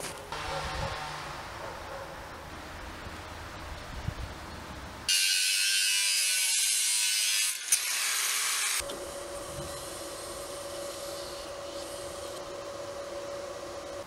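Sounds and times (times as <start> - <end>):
angle grinder cutting steel: 5.1 - 8.8
steady one-tone hum: 8.8 - 14.0.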